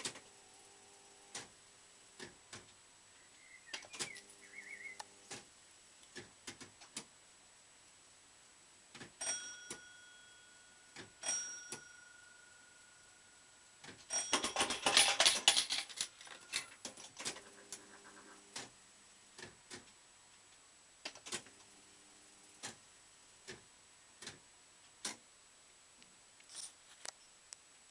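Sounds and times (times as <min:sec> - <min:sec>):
low buzzing hum: 0:00.0 - 0:14.0, 0:16.3 - 0:26.4
bell-like rings: 0:09.2 - 0:14.7.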